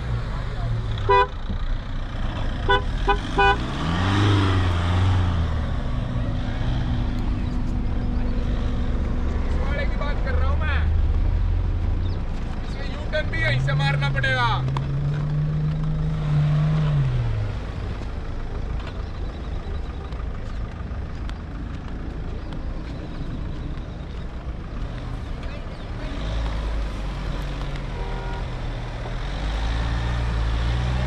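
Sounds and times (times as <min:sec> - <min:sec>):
suv engine running: 0:00.0 - 0:31.0.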